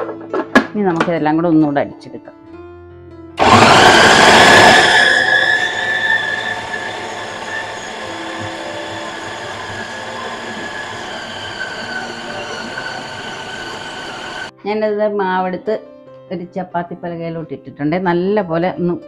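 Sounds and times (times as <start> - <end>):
mixer grinder motor whine: 3.4 - 14.5.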